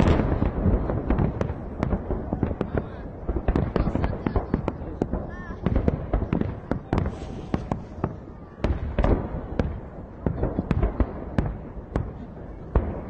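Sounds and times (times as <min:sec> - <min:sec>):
fireworks bangs: 0:00.0 - 0:13.0
fireworks crackling: 0:00.0 - 0:13.0.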